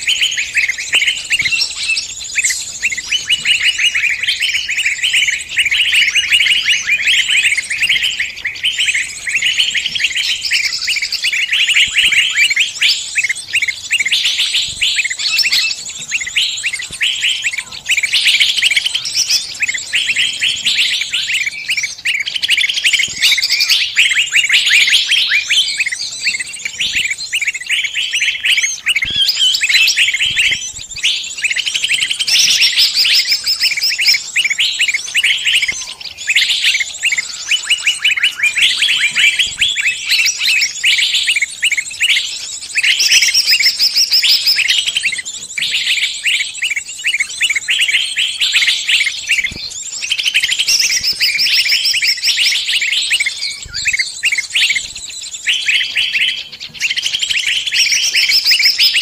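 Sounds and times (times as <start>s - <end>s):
songbirds chirping and trilling: 0.0s - 59.0s.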